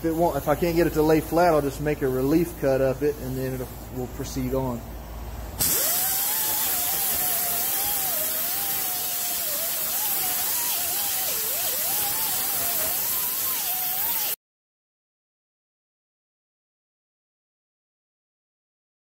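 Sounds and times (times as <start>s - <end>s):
grinder whine grinding fiberglass: 5.6s - 14.4s.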